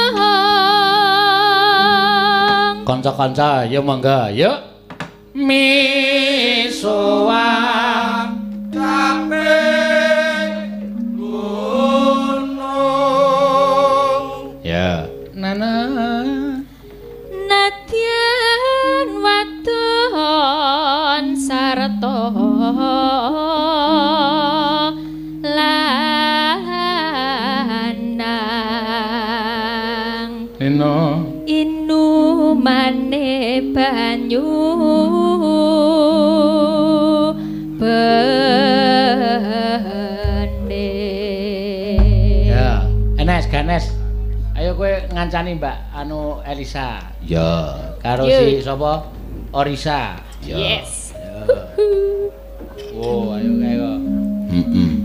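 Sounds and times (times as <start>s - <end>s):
woman singing in ornamented voice: 0.0s - 2.8s, 17.3s - 30.6s, 31.2s - 42.6s
gamelan accompaniment: 5.2s - 20.5s, 21.3s - 28.9s, 36.2s - 48.8s, 50.5s - 55.0s.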